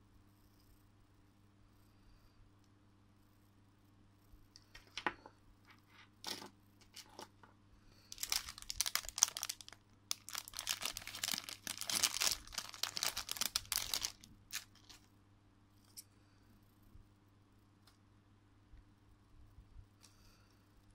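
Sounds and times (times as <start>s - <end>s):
plastic bag crinkling: 8.1s - 15.1s.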